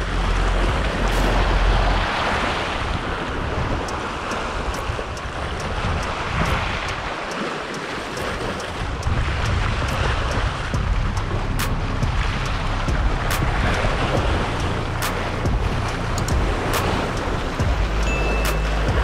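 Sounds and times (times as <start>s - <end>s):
waves splashing on rocks: 0.0s - 19.0s
wind buffeting microphone: 0.0s - 19.0s.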